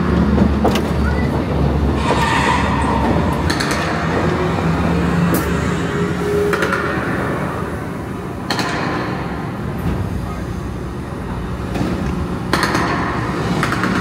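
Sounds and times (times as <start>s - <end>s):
tram rolling with low rumble: 0.0s - 14.0s
sharp knocks: 2.0s - 4.7s.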